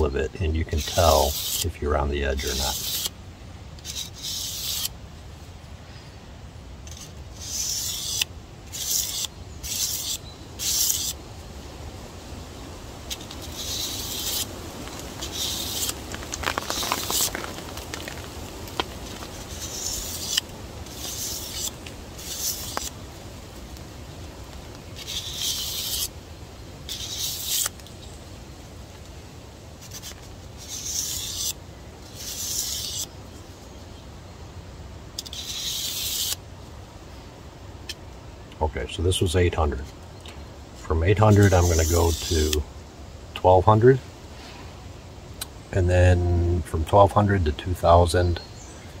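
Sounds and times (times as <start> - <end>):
knife rasping on sandpaper: 0.6 - 1.7, 2.3 - 3.1, 3.8 - 4.9, 6.9 - 11.2, 13.1 - 14.5, 15.2 - 16.0, 16.6 - 17.4, 19.3 - 23.0, 25.0 - 26.1, 26.9 - 27.7, 29.8 - 33.1, 35.2 - 36.4, 41.2 - 42.6.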